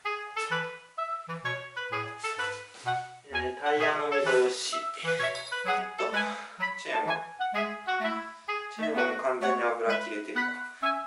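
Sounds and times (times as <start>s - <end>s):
lively tune with bouncing bass: 0.0s - 11.0s.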